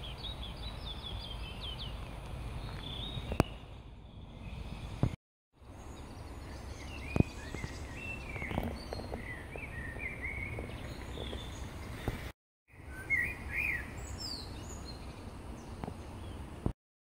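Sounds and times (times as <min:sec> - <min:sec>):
small birds singing: 0:00.0 - 0:16.7.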